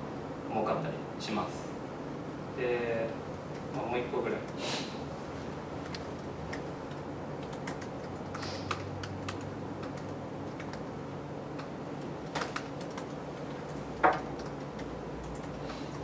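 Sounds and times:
low room hum: 0:00.0 - 0:16.0
laptop keyboard typing: 0:05.7 - 0:16.0.

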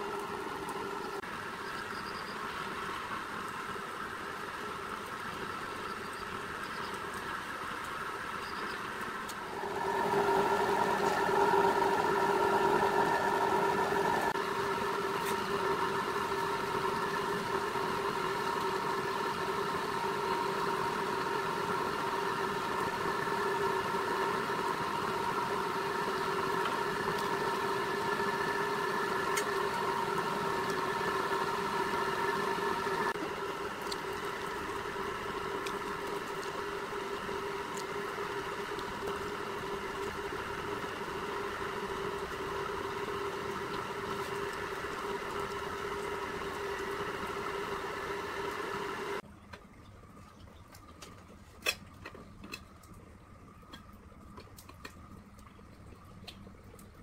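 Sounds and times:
roller bender mechanical whine: 0:00.0 - 0:02.8, 0:08.4 - 0:49.2.

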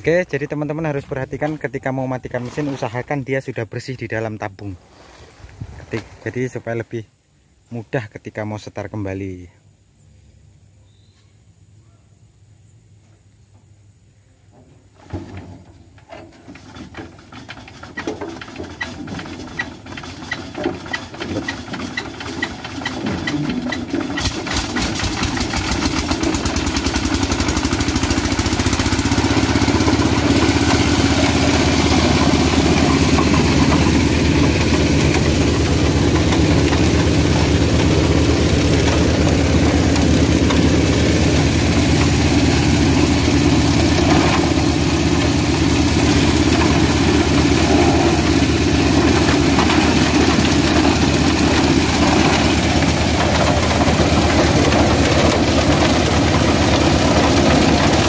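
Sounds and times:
small engine starting and running: 0:16.3 - 0:58.0
engine hand-cranked: 0:16.5 - 0:58.0.

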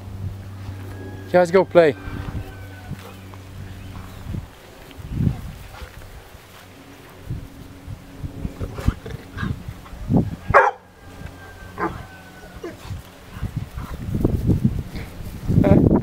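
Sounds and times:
dog barking: 0:10.5 - 0:10.9.

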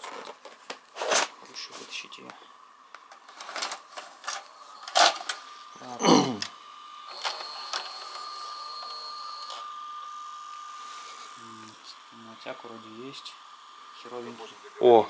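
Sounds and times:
high motor whine: 0:03.6 - 0:15.0.

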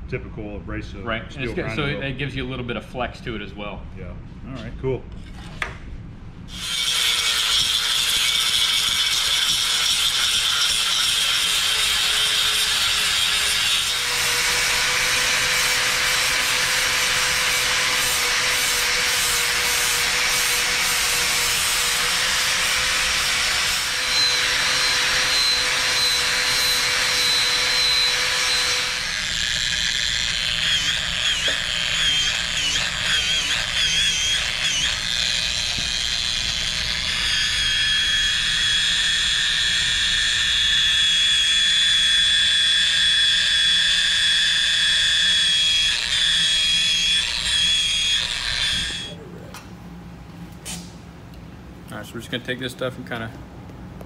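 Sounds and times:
angle grinder grinding steel: 0:06.5 - 0:49.2
die grinder whine: 0:06.5 - 0:49.4.

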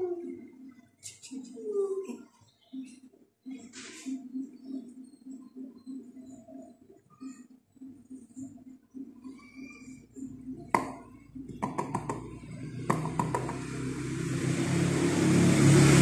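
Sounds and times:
vehicle engine passing by: 0:12.5 - 0:16.0
sharp knocks: 0:12.9 - 0:13.6.

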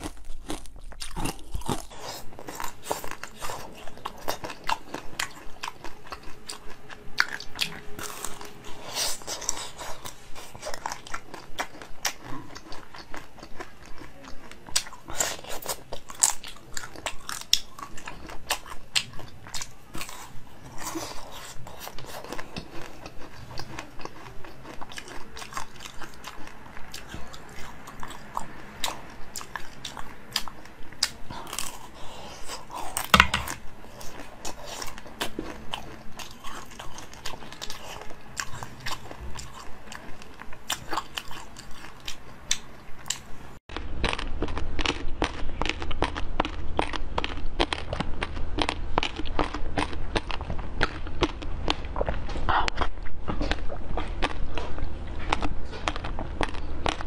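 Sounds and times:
biting and chewing jelly: 0:00.0 - 0:57.0.

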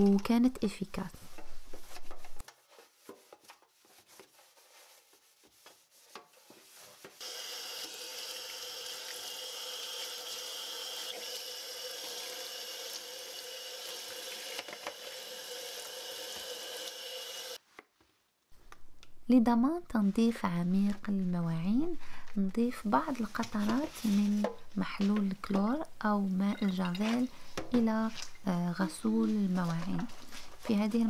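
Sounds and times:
scrubbing in steel sink: 0:01.2 - 0:07.2
tap water running into sink: 0:07.2 - 0:17.5.

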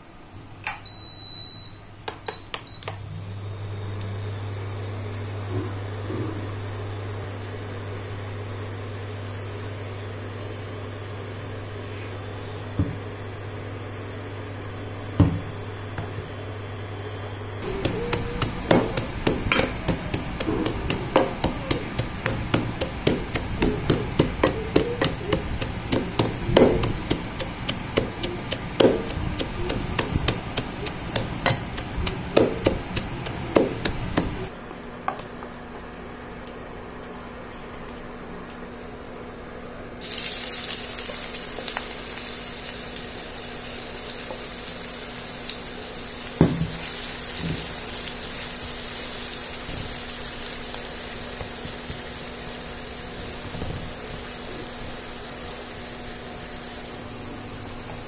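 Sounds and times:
cooktop low hum: 0:00.0 - 0:58.0
vegetable chopper clicking: 0:17.6 - 0:34.5.

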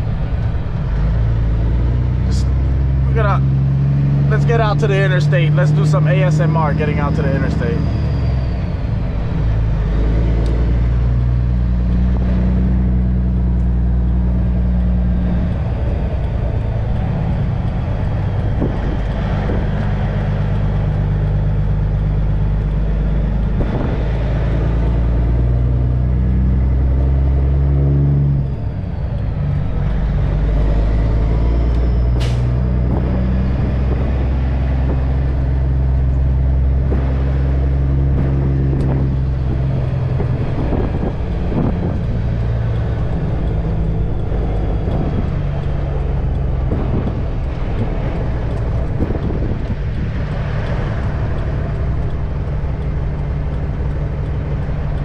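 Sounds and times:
truck diesel engine accelerating: 0:00.0 - 0:55.0.

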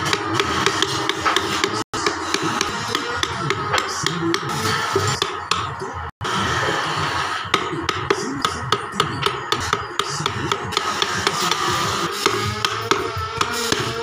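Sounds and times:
background music: 0:00.0 - 0:14.0
mallet tapping chisel into wood: 0:00.1 - 0:04.4.

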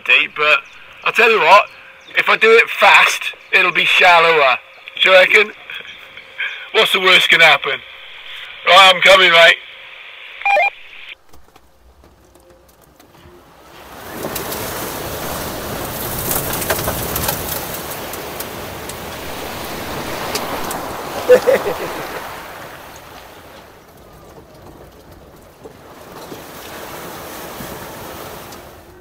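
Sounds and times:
river water splashing: 0:13.3 - 0:29.0.

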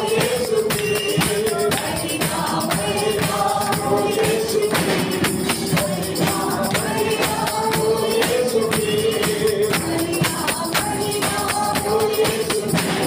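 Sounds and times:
hand drums beating: 0:00.0 - 0:13.0
voices singing together: 0:00.0 - 0:13.0
hand clapping: 0:00.2 - 0:08.6.

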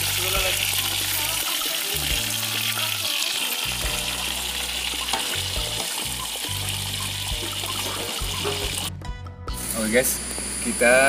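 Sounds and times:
fish sizzling in hot oil: 0:00.0 - 0:08.9, 0:09.6 - 0:11.0
spatula scraping wok: 0:04.3 - 0:08.9.

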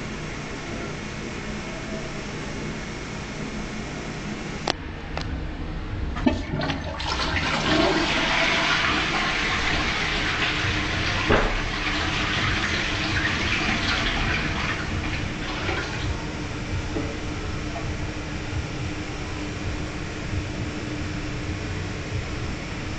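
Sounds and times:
toilet water rushing: 0:06.0 - 0:21.6.

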